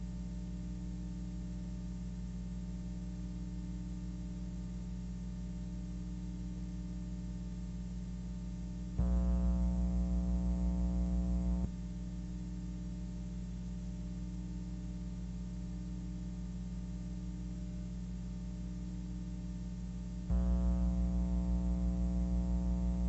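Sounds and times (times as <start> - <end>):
low electrical hum: 0.0 - 23.0
buzzing tone: 9.0 - 11.7, 20.3 - 23.0.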